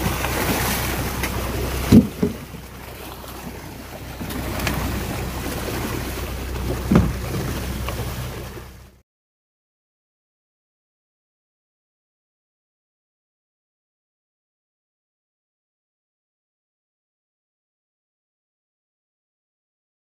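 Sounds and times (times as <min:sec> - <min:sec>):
fish thrashing and splashing: 0:00.0 - 0:08.8
low engine hum: 0:00.0 - 0:09.0.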